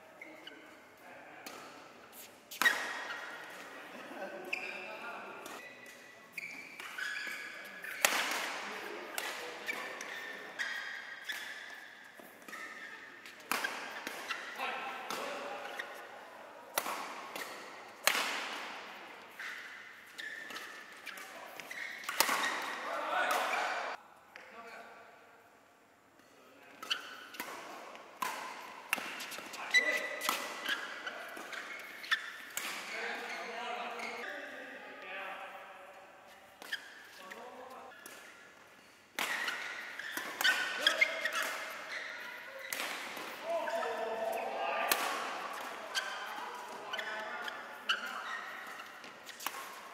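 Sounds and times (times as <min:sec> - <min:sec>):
shoes squeaking on court floor: 0:00.1 - 0:24.0, 0:26.7 - 0:34.8, 0:36.2 - 0:49.9
racquets hitting shuttlecock: 0:05.4 - 0:16.0, 0:16.7 - 0:24.0, 0:26.8 - 0:33.3, 0:37.9 - 0:49.9.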